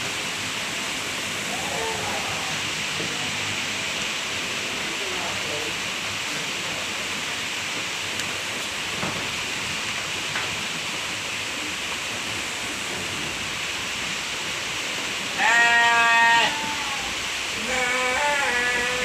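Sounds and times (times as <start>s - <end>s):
steady hiss: 0.0s - 19.0s
sheep bleating: 15.4s - 19.0s.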